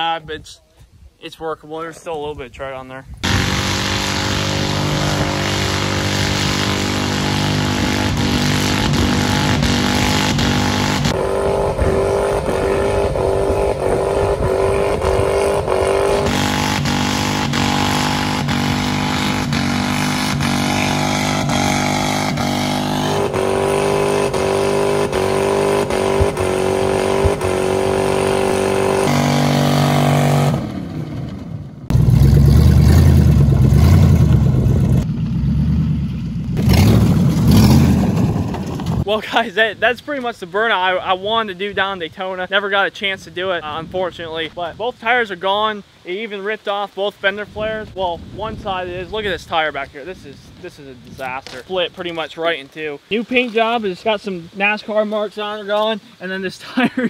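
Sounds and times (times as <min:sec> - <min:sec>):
truck engine at high revs: 0:03.2 - 0:39.1.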